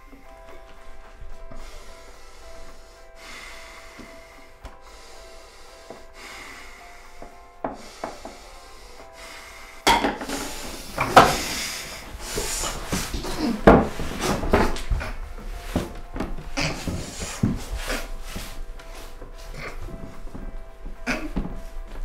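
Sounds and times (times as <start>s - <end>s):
knocks and rubbing: 9.8s - 22.0s
body knocking wooden cupboards: 12.9s - 17.8s.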